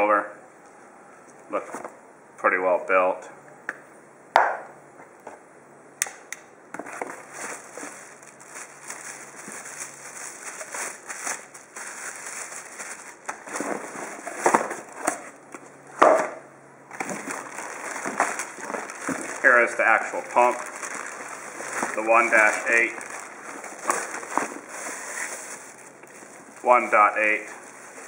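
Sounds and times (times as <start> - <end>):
cardboard rustling: 6.8 - 15.4, 16.9 - 28.0
plastic packaging crinkling: 6.9 - 15.4, 16.9 - 28.0.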